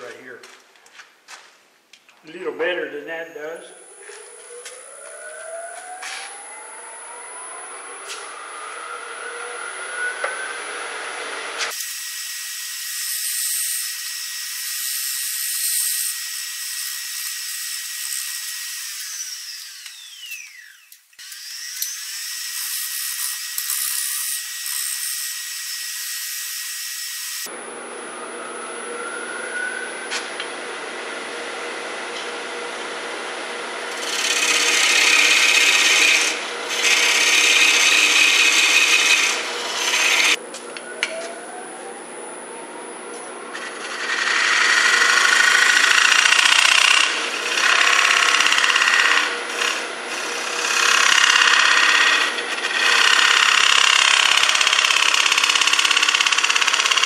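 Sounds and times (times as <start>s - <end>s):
wood lathe motor whining: 3.7s - 27.5s, 31.5s - 42.5s, 43.4s - 57.0s
tool scraping spinning wood: 33.8s - 40.4s, 43.5s - 57.0s.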